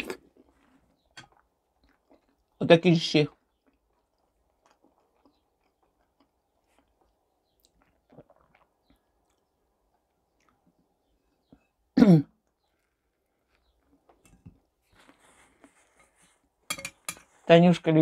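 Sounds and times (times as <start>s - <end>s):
faint chewing: 0.0s - 2.6s, 3.2s - 17.5s
person clearing throat: 12.0s - 12.4s.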